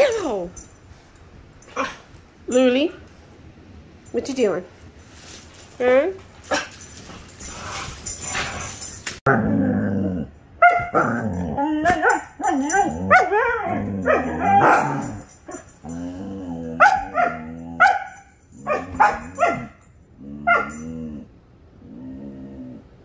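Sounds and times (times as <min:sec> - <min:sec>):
dogs growling: 0:07.3 - 0:17.9, 0:18.5 - 0:23.0
dogs yipping and barking: 0:10.6 - 0:16.0, 0:16.7 - 0:19.8, 0:20.5 - 0:20.9.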